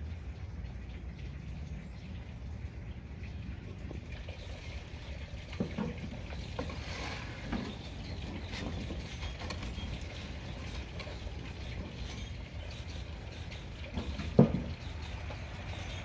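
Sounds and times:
grill lid knocks and clatter: 13.9s - 14.8s.

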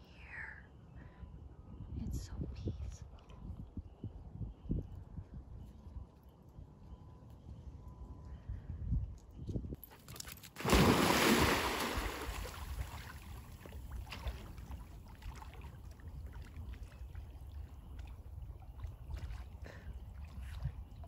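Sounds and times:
dog splashing into water: 9.9s - 16.5s
water sloshing from swimming dog: 9.9s - 21.0s.

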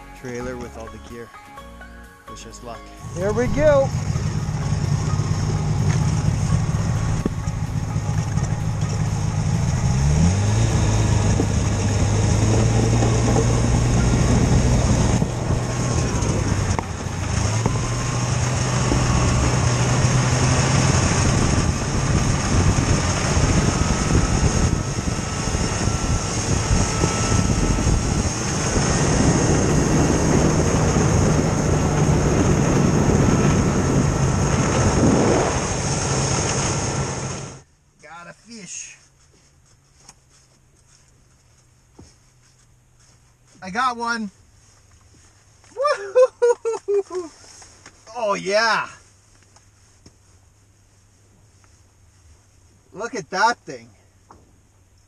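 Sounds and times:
snowmobile engine revving: 3.0s - 37.6s.

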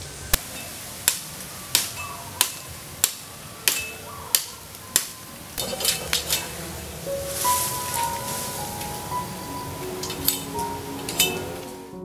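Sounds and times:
machete chopping bamboo: 0.4s - 5.2s.

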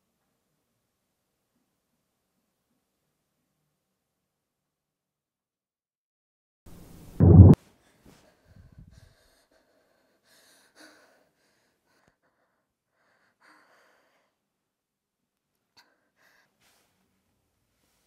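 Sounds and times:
faint soft breaths: 7.6s - 14.5s, 15.6s - 18.0s.

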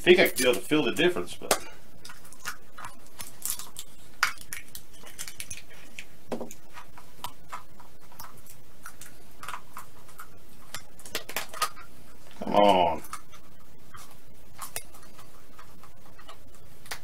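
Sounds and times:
plastic eggs clicking and rattling: 0.2s - 11.8s.

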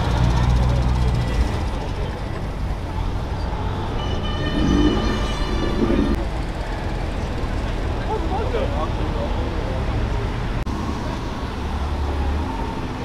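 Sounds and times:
car engines rumbling: 0.0s - 13.0s
high-pitched steady tone: 3.9s - 6.2s.

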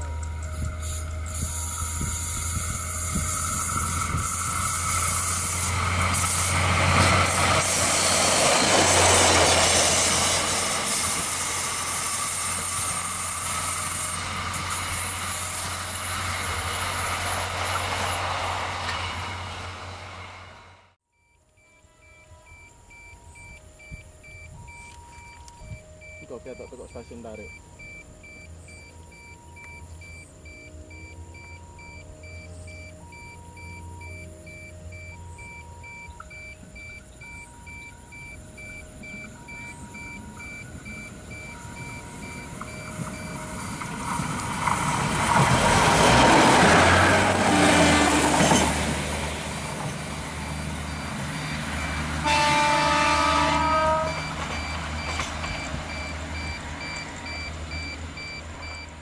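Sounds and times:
diesel railcar passing: 0.0s - 59.0s
two-tone warning beep: 21.2s - 44.6s, 49.6s - 59.0s
train horn: 21.6s - 22.9s, 52.2s - 54.6s.

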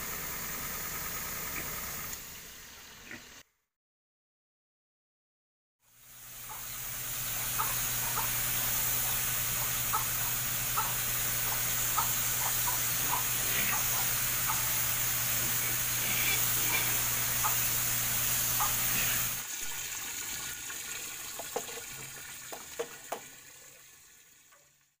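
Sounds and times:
sprayer motor hum: 0.0s - 2.4s, 6.2s - 19.8s
high-pressure water jet hiss: 0.0s - 3.4s, 5.9s - 22.1s.

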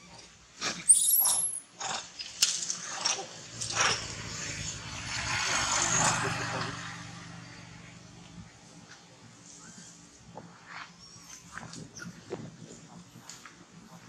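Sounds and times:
noise with low hum: 0.0s - 14.0s.

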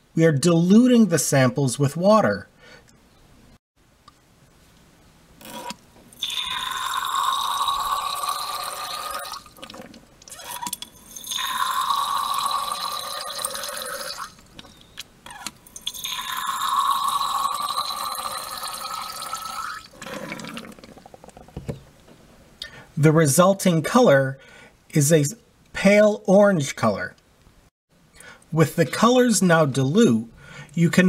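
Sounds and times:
water streaming into glass tubes: 5.4s - 14.5s, 15.6s - 21.4s.

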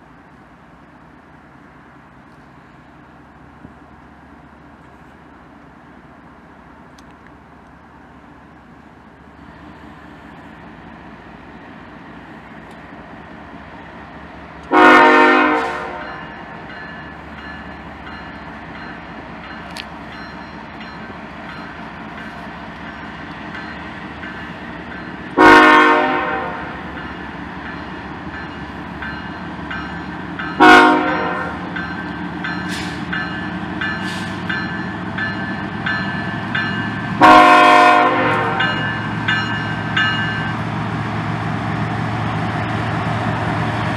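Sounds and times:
diesel locomotive rumble: 0.0s - 43.9s
locomotive air horn blasts: 14.7s - 16.2s, 25.4s - 26.8s, 30.6s - 31.7s, 37.2s - 38.8s.

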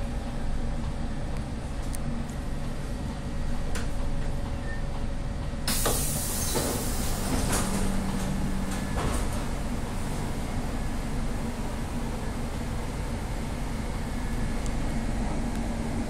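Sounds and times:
low train rumble: 0.0s - 16.0s
train door hiss: 5.6s - 10.3s
doors sliding hum: 5.7s - 16.0s.

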